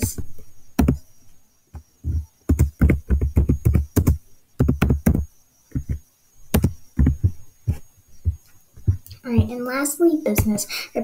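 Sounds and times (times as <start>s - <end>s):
computer keyboard typing: 0.8s - 1.0s, 2.1s - 7.3s.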